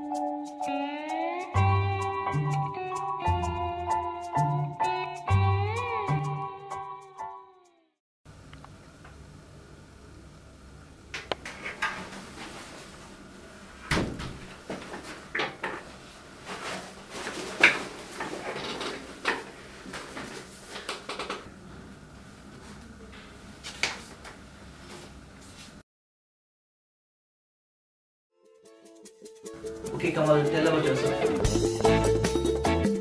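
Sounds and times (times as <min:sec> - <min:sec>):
office chair moving: 0:14.6 - 0:21.5
papers rustling: 0:16.4 - 0:21.1.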